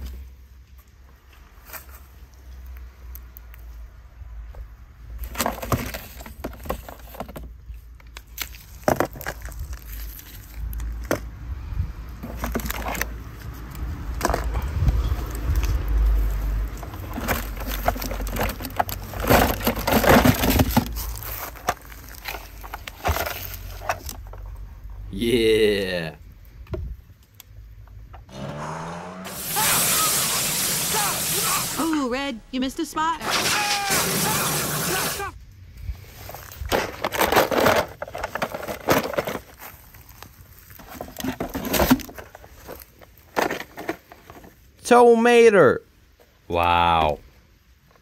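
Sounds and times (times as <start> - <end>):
toy cars clicking and clattering: 16.8 - 24.4.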